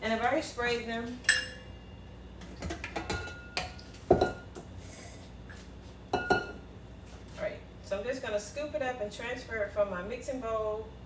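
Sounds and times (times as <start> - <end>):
kitchenware clicking and knocking: 2.6 - 4.4
metallic ring: 6.1 - 6.6.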